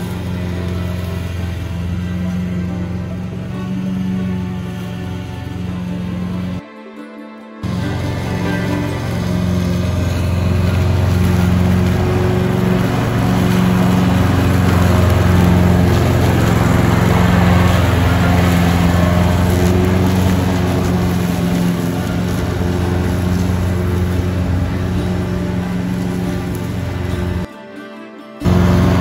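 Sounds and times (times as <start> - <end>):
blades cutting dry grass: 0.0 - 6.6, 7.6 - 27.5, 28.4 - 29.0
lawn tractor engine running: 0.0 - 6.6, 7.6 - 27.5, 28.4 - 29.0.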